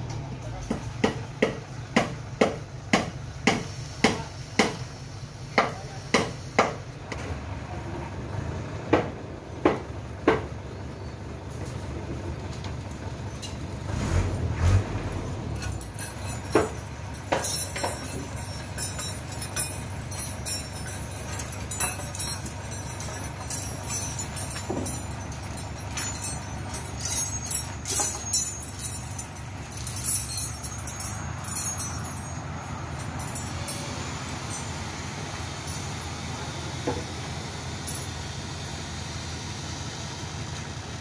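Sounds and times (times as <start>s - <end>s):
crane engine running: 0.0s - 41.0s
light high jingling: 15.6s - 36.7s.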